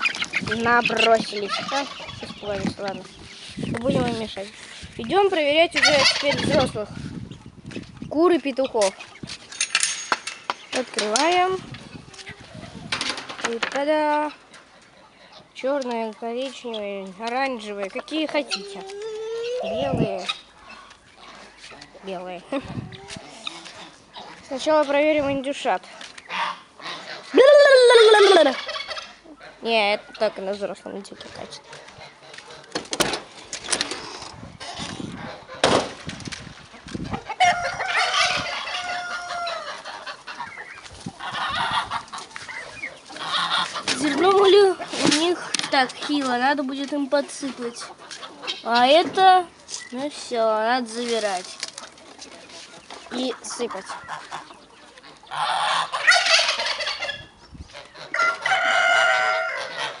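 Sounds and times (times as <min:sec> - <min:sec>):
chickens and turkeys clucking: 0:00.0 - 1:00.0
rooster crowing: 0:37.4 - 0:39.7, 0:58.1 - 1:00.0.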